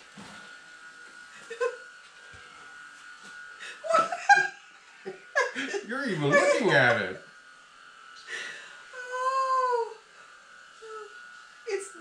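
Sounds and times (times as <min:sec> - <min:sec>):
whine of small electric motors: 0:00.0 - 0:12.0.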